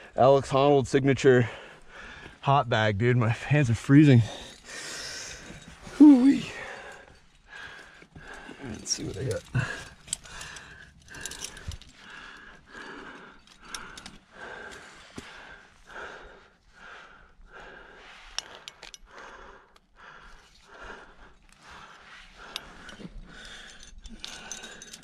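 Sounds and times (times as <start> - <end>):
person breathing hard: 1.5 - 2.4, 4.3 - 25.0
gear clicks and rock scrapes: 3.5 - 14.9.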